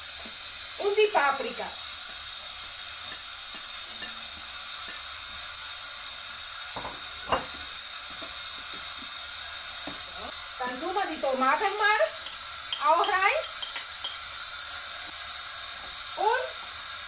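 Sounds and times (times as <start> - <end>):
vegetables sizzling in a frying pan: 0.0 - 17.0
turner scraping and tapping pan: 2.0 - 5.2, 6.7 - 9.2, 12.1 - 14.3.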